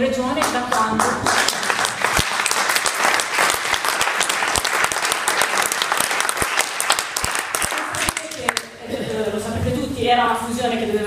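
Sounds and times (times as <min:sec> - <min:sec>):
audience applauding: 0:00.4 - 0:08.8.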